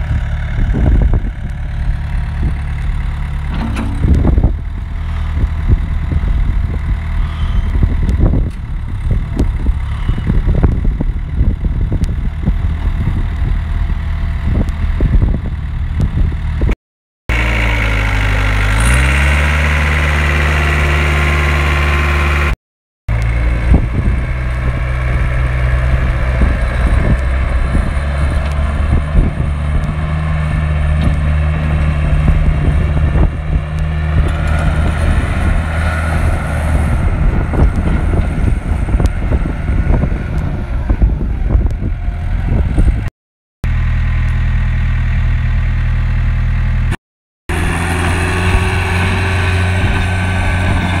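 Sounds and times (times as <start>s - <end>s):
diesel engine running: 0.0s - 51.0s.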